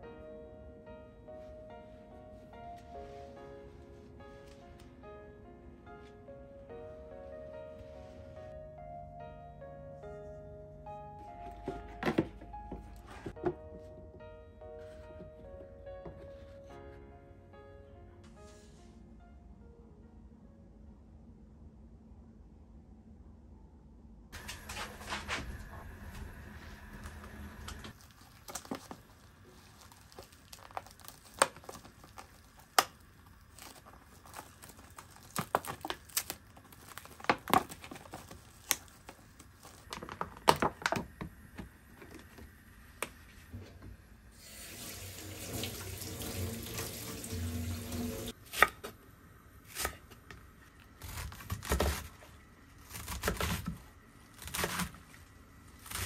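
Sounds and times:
cling film crinkling and tearing: 24.4s - 41.0s
tap running into sink: 44.7s - 48.3s
knife cutting cabbage on wooden board: 49.7s - 50.2s, 51.0s - 52.2s, 52.8s - 53.8s, 54.4s - 55.1s, 55.8s - 56.0s.

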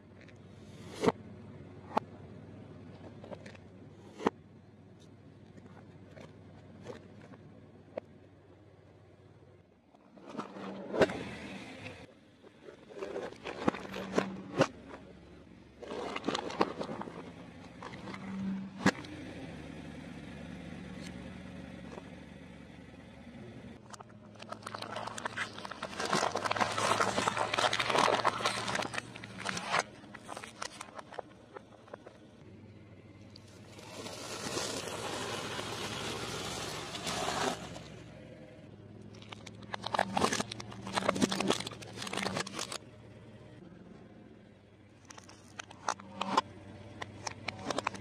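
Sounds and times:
car tyre crushing objects: 9.9s - 19.3s, 23.8s - 32.4s, 39.0s - 42.8s.

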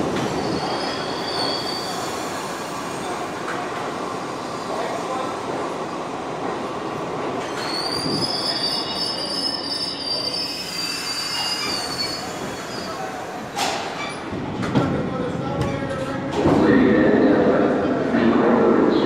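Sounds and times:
subway train wheels rumbling: 0.0s - 19.0s
high wheel squeal: 0.3s - 2.3s, 7.4s - 13.2s.

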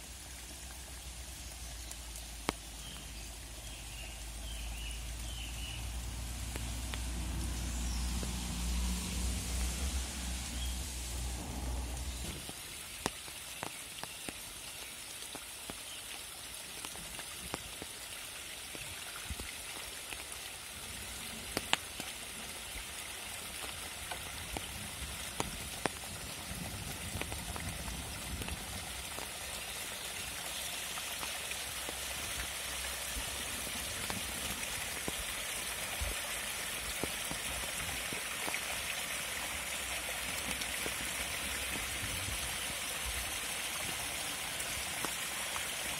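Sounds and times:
flood water rushing down stream: 0.0s - 45.9s
rain pattering in woodland: 0.0s - 45.9s
sharp water drips: 0.0s - 45.9s.

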